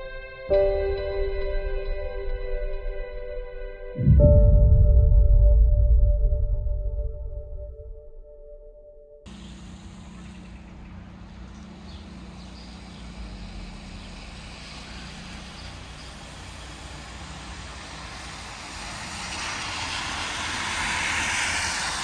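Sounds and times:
car tyres hissing on wet road: 11.9 - 22.0.

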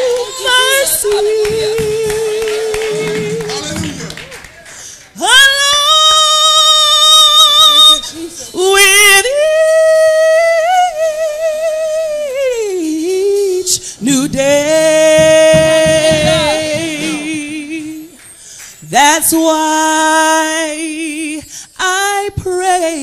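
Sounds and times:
gospel choir singing: 0.0 - 4.1, 13.7 - 18.1.

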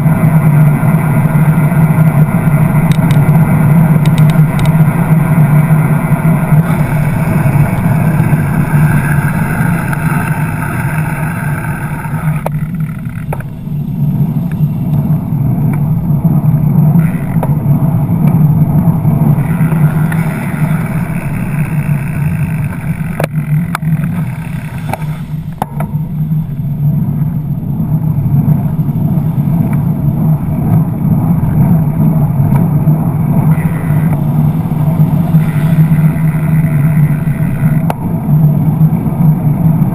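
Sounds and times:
road traffic drone: 0.0 - 39.9
sharp clicks: 2.8 - 3.4, 4.0 - 5.0.

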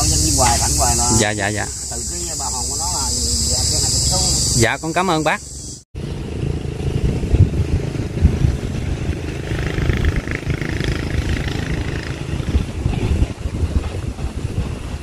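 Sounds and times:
vehicle engine running: 0.0 - 4.6, 5.4 - 15.0
wind buffeting microphone: 6.0 - 15.0.

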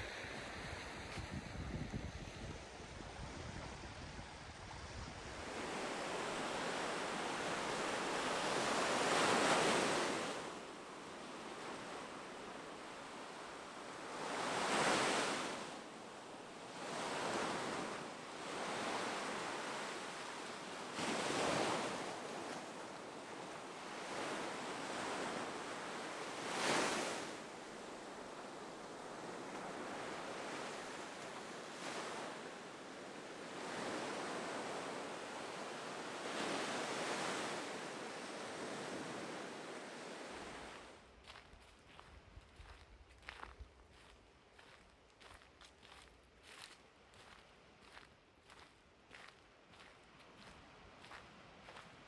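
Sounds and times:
wind rumble on microphone: 0.0 - 5.6
waves breaking on sandy beach: 0.0 - 52.0.

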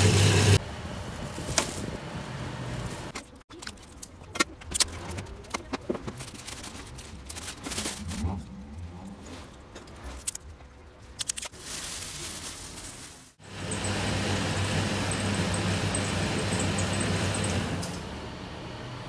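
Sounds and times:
plastic tape and bag rustling: 5.3 - 8.5, 11.2 - 13.4
electric chopping machine whirring: 13.4 - 19.0.

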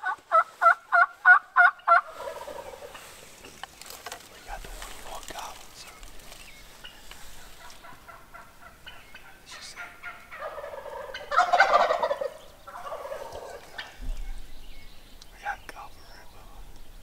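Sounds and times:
brief turkey calls: 0.0 - 3.2, 6.7 - 14.3
turkey gobbling: 0.0 - 3.3, 6.6 - 14.4.

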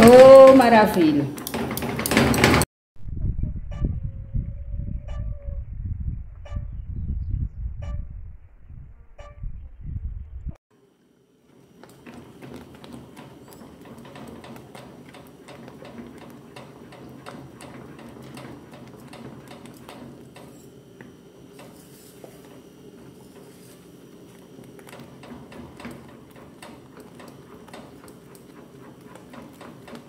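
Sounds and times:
steady low hum: 3.0 - 10.6.

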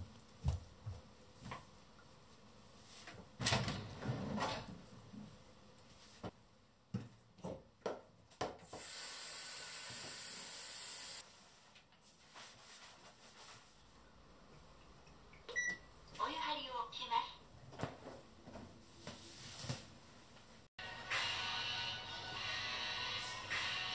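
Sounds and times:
shower head spraying water: 8.7 - 11.2.

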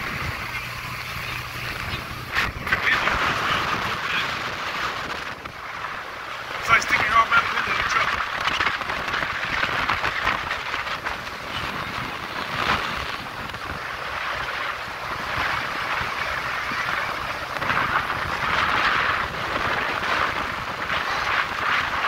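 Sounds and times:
water noise from boat hull: 0.0 - 22.0
wind rushing over microphone: 0.0 - 22.0.

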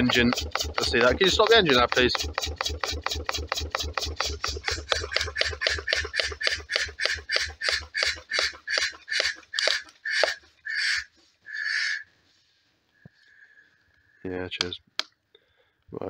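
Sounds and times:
stirling engine rhythmic beat slowing: 0.0 - 12.0.

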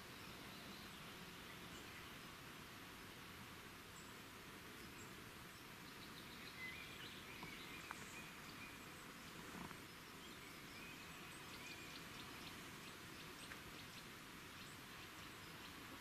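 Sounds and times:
low steady hiss: 0.0 - 16.0.

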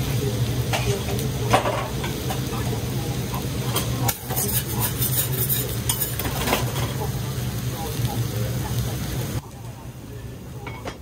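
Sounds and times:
food sizzling on griddle: 0.0 - 11.0
metal spatulas scraping griddle: 3.8 - 6.8.

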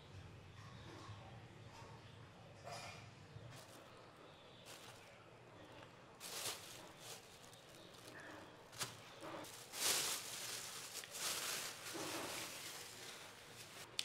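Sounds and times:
plastic bag rustling: 3.6 - 3.9, 4.6 - 14.0.

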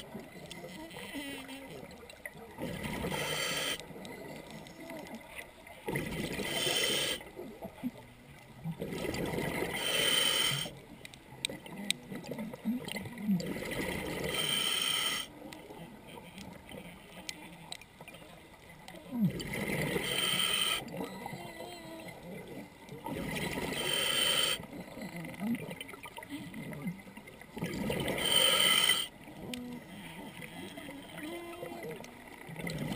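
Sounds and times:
diver inhaling through regulator: 3.0 - 3.8, 6.4 - 7.2, 9.7 - 10.7, 14.2 - 15.3, 19.9 - 20.9, 23.6 - 24.7, 28.0 - 29.1
exhaled bubbles bursting: 8.7 - 9.8, 12.0 - 14.3, 19.2 - 20.1, 25.2 - 28.2.

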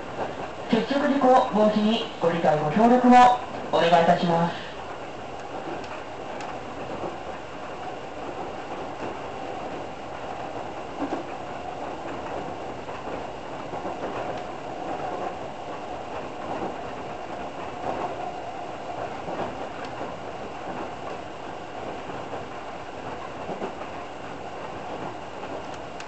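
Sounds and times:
train wheels on rail: 0.0 - 26.0.

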